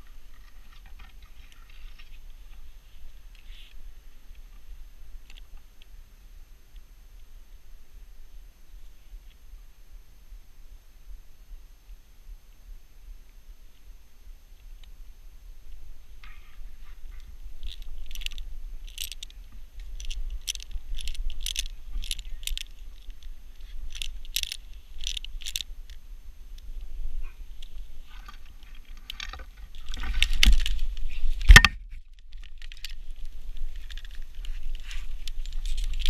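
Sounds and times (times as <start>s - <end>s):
branches brushing and scraping: 0.0s - 3.8s, 16.2s - 26.0s, 26.6s - 36.0s.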